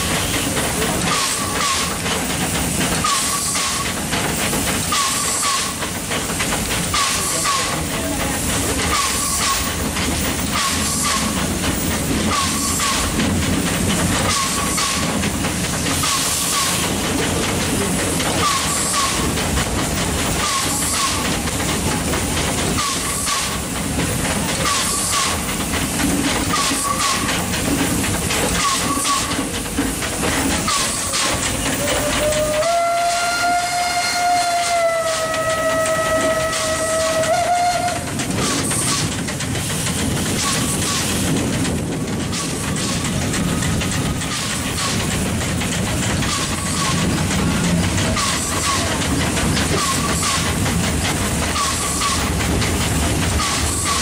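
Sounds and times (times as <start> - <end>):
steam exhaust chuffs: 0.0 - 54.0
steam hiss: 0.0 - 54.0
steam whistle blast: 31.8 - 38.1.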